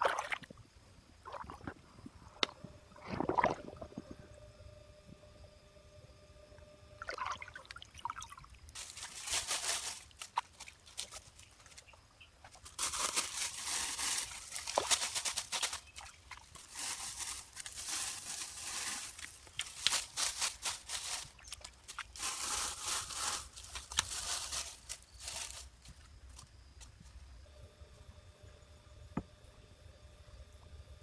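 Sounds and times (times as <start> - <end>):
water splashing and trickling: 0.0 - 0.6, 7.0 - 25.6
dry leaves rustling and crackling: 8.8 - 26.4.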